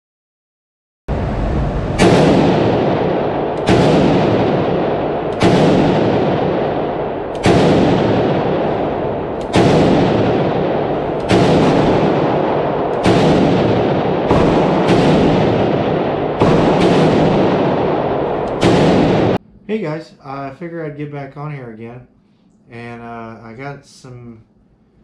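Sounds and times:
rifle shots echoing indoors: 1.3s - 19.4s.

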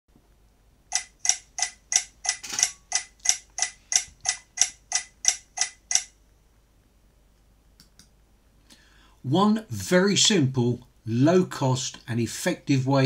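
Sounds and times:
sharp ticks: 0.9s - 6.2s.

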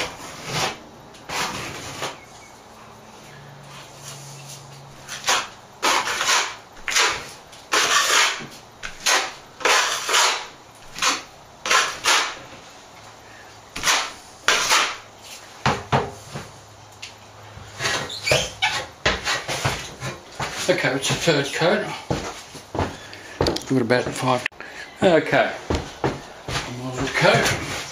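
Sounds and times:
trowel scraping plaster: 0.0s - 2.2s, 5.0s - 12.4s, 13.8s - 15.5s, 17.7s - 21.6s.

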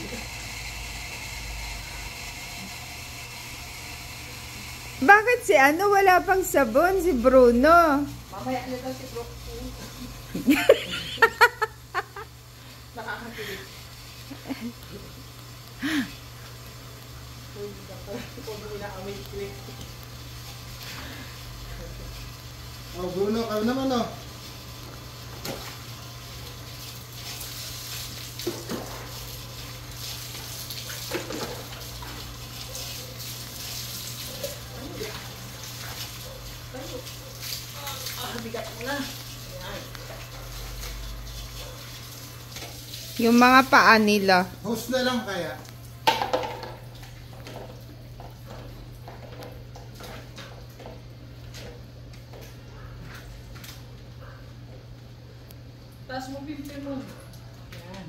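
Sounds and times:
water splashing on dog and floor: 0.0s - 58.0s
hands scrubbing wet dog: 26.8s - 43.1s.

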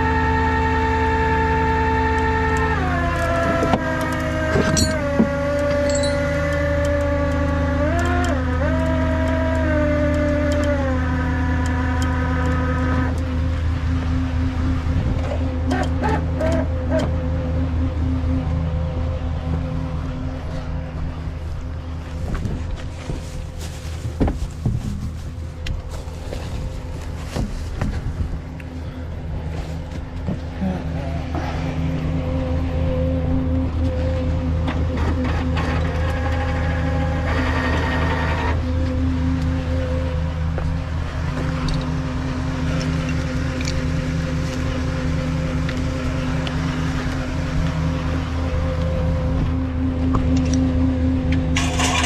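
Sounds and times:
truck engine idling: 0.0s - 52.0s
footsteps: 21.4s - 28.4s.

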